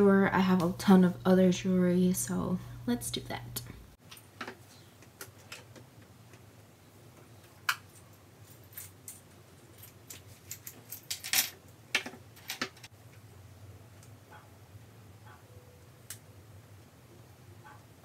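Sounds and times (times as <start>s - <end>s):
jewelry clinking and clicking: 7.6s - 12.9s.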